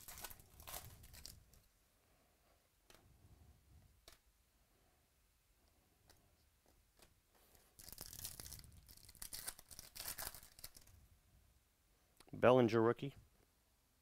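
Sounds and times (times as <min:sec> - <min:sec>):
plastic crinkling and tearing: 0:00.0 - 0:01.7, 0:07.7 - 0:10.9.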